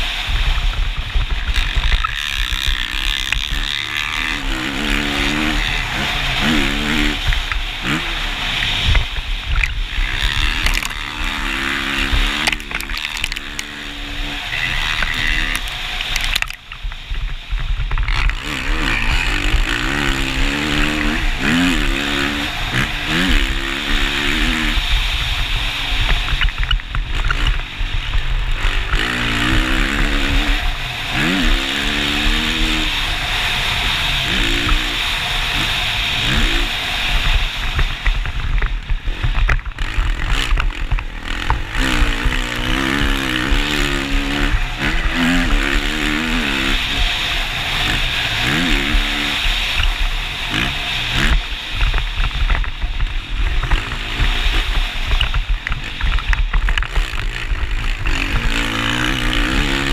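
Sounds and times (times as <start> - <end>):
motorcycle engine revving: 0.0 - 59.9
steady rushing noise: 0.0 - 59.9.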